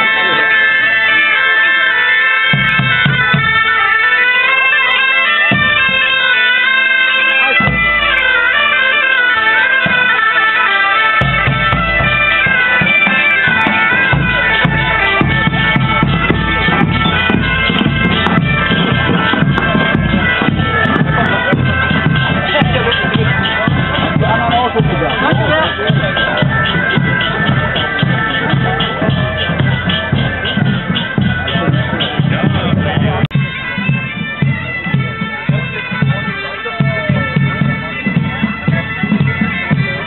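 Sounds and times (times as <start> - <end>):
bagpipes playing a tune: 0.0 - 40.0
large drum beating: 2.5 - 3.7, 5.4 - 6.1, 7.4 - 8.4, 11.2 - 40.0.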